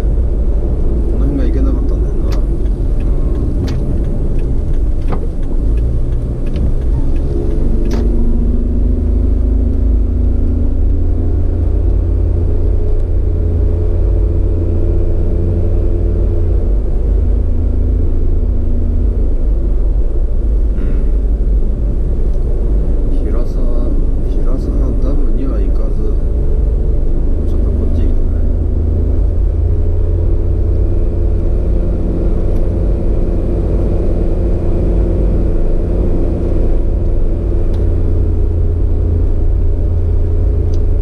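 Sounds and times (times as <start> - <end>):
engine drone: 0.0 - 41.0
wind and road noise: 0.0 - 41.0
sharp click: 3.6 - 8.2.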